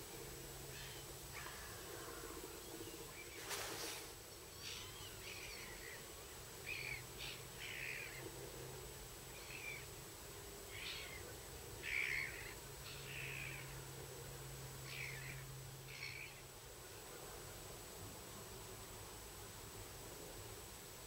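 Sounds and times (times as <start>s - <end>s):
steady low hum: 0.0s - 21.0s
faint bird calls: 0.6s - 8.6s, 9.3s - 10.0s, 10.6s - 13.9s, 14.8s - 16.5s.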